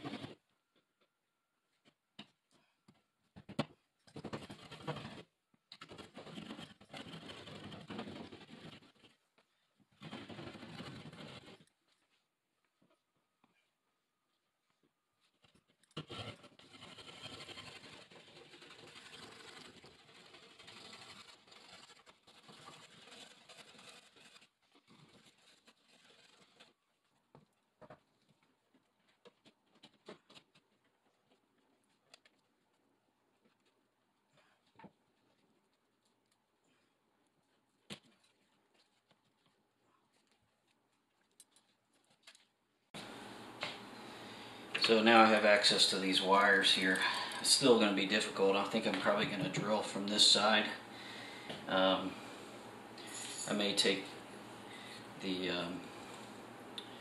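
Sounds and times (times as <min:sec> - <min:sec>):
blade scraping drywall: 0:04.2 - 0:09.2, 0:10.0 - 0:11.8, 0:16.0 - 0:26.8.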